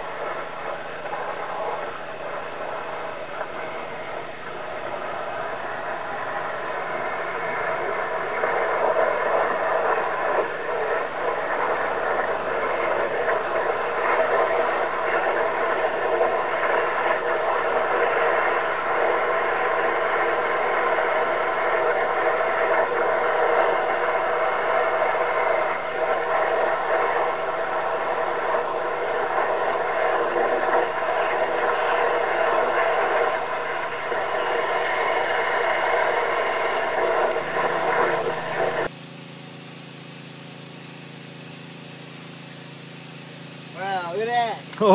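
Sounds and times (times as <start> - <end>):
pressure washer engine running: 37.4 - 44.9.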